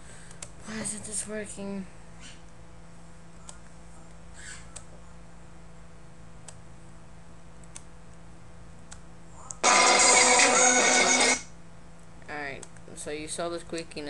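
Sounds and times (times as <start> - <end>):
steady low hum: 0.0 - 14.0
computer mouse clicks: 7.6 - 8.2.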